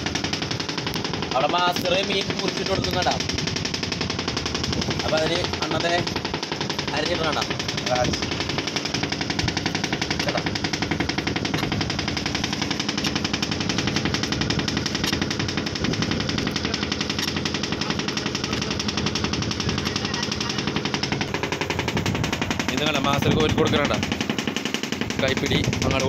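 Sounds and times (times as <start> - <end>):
boat engine knocking: 0.0 - 26.0.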